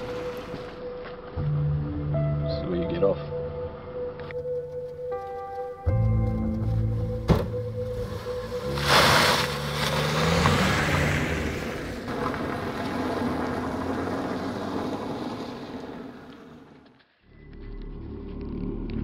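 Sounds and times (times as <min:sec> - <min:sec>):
car engine accelerating: 0:06.0 - 0:19.0
tyres on gravel: 0:07.9 - 0:17.8.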